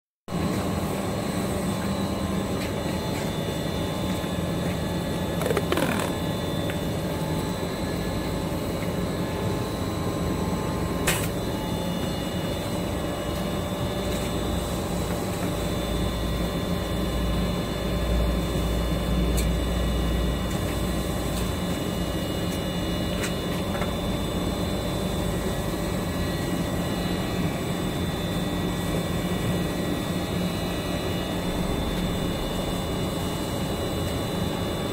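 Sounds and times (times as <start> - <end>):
machinery humming and whining: 0.3 - 34.9
deep rumble: 31.1 - 34.6.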